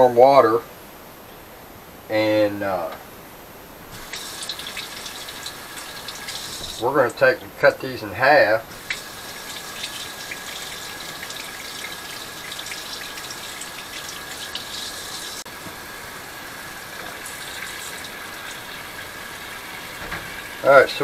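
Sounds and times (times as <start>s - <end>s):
faucet running: 4.0s - 7.3s, 8.7s - 21.0s.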